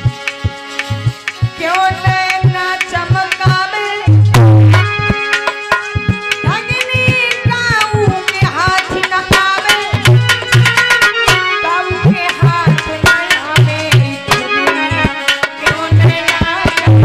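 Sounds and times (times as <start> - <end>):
hand drums beating: 0.0 - 17.0
held sliding melody notes: 4.2 - 9.2, 10.1 - 16.4.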